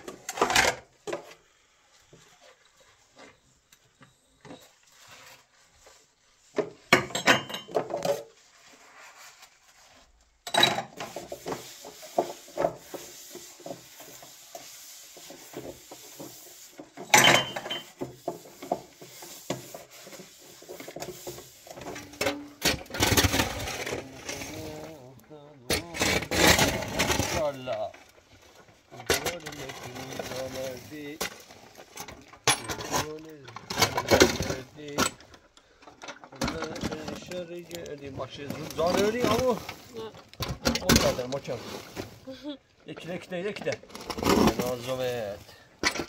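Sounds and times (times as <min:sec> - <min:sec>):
dishes and utensils clattering: 0:06.6 - 0:08.3, 0:10.4 - 0:12.8, 0:17.0 - 0:18.9.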